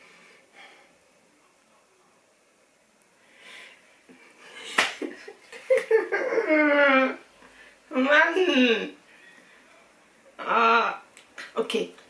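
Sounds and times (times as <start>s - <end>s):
woman breathing: 0.0s - 1.0s, 3.2s - 4.8s, 7.4s - 7.9s
woman laughing: 4.6s - 7.2s.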